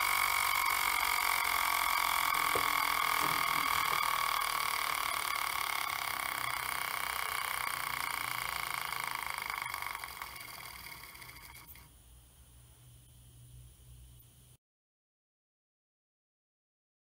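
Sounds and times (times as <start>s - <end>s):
steam engine humming and ticking: 0.0s - 11.8s.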